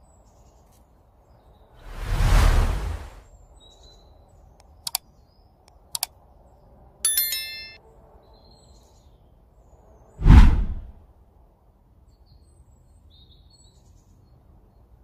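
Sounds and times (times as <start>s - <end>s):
faint birdsong: 0.0s - 1.8s, 3.3s - 7.6s, 12.1s - 15.0s
whoosh sound effect: 1.8s - 3.2s, 10.2s - 11.0s
mouse clicks: 4.6s - 5.0s, 5.7s - 6.1s
bright bell ding: 7.1s - 7.8s.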